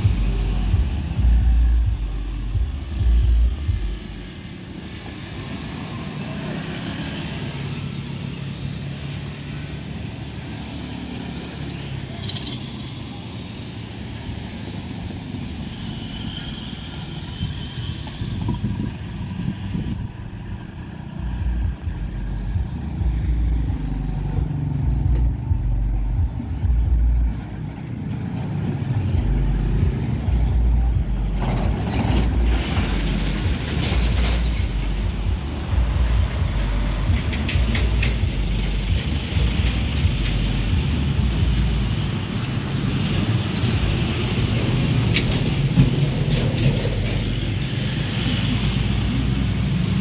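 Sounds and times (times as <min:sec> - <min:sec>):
heavy low rumble: 0:00.0 - 0:04.3, 0:18.5 - 0:27.6, 0:28.9 - 0:42.1
vehicle engines passing: 0:00.0 - 0:50.0
truck clacking over rails: 0:29.1 - 0:42.0, 0:43.3 - 0:47.6.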